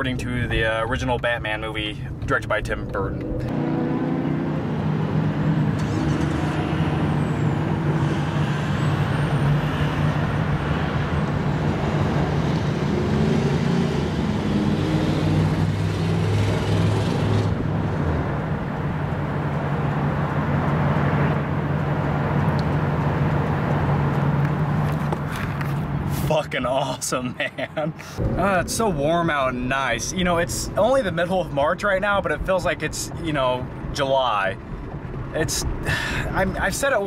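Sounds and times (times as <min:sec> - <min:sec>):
road traffic noise: 0:00.0 - 0:37.0
rushing noise: 0:28.1 - 0:31.5.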